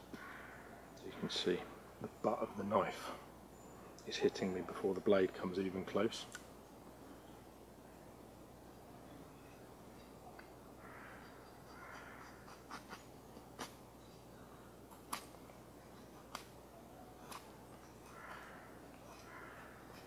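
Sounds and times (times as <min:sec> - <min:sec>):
light sharp clicks: 0:14.9 - 0:15.4, 0:16.2 - 0:16.6, 0:17.2 - 0:20.0.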